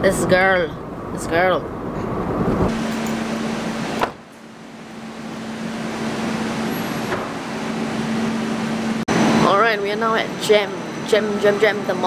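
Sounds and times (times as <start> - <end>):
low hum and rumble: 0.0 - 12.0
car door shutting: 3.9 - 4.3, 6.6 - 7.6.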